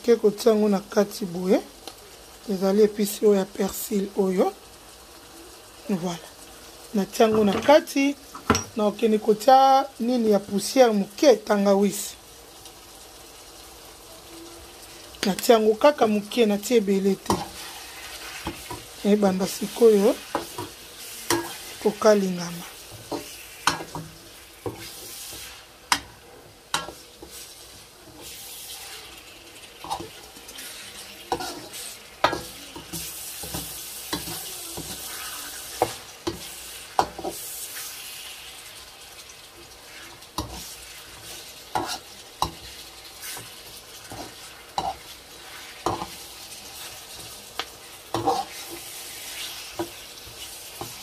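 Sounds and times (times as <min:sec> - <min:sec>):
meat sizzling in a wok: 0:00.0 - 0:51.0
metal spoon scraping a pan: 0:17.2 - 0:38.1, 0:39.9 - 0:51.0.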